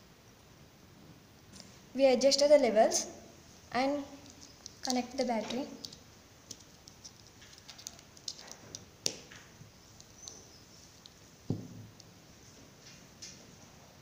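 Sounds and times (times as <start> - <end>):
dull knock: 11.5 - 11.9.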